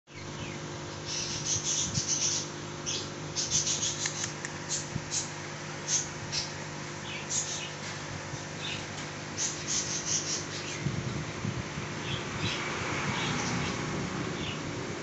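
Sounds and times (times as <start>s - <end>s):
steady low hum: 0.1s - 15.0s.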